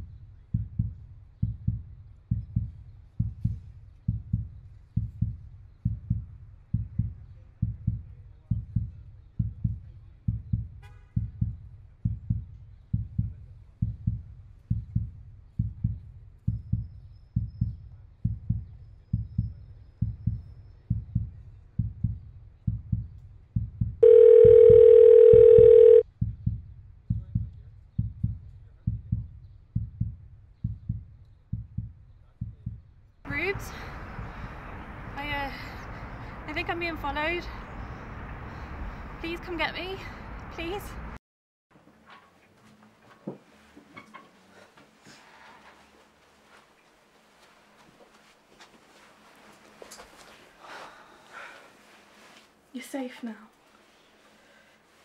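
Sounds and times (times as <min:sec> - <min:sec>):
heartbeat thumping: 0:00.0 - 0:33.5
telephone ringing tone: 0:24.0 - 0:26.0.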